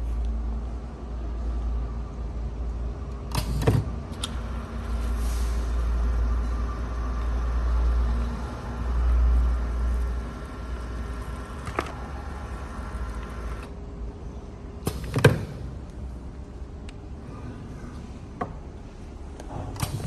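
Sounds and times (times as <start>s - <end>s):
machine hum and rumble: 0.0s - 20.0s
loud mechanical clunk: 3.3s - 4.4s, 14.8s - 15.8s, 19.5s - 20.0s.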